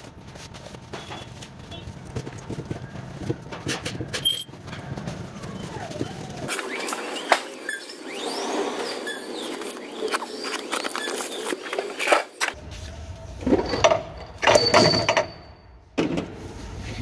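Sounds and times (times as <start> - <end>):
metal parts clinking: 13.4 - 15.8.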